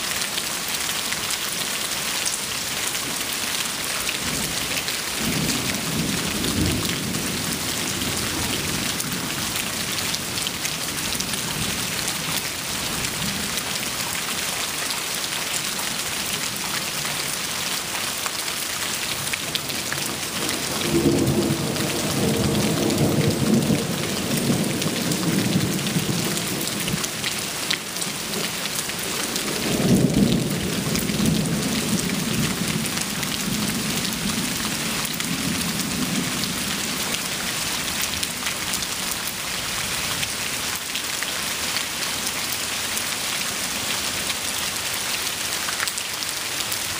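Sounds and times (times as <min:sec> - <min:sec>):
heavy rain on concrete: 0:00.0 - 0:46.9
thunder rumbling: 0:04.3 - 0:10.4, 0:20.1 - 0:37.4.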